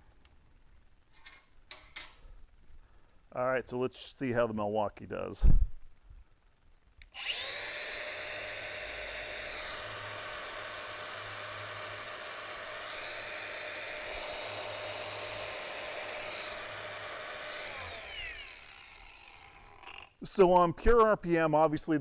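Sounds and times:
angle grinder whining: 7.0s - 20.2s.

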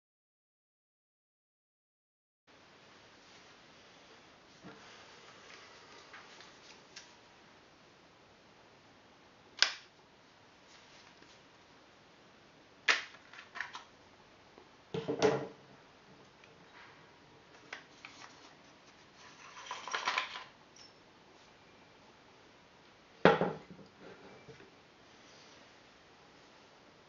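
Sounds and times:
scraping rustle: 17.9s - 20.2s.

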